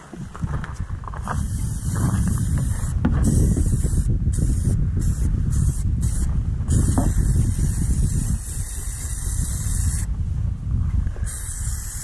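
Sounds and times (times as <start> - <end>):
low rumble: 0.2 - 11.3
aerosol can spraying: 1.4 - 10.1, 11.3 - 12.0.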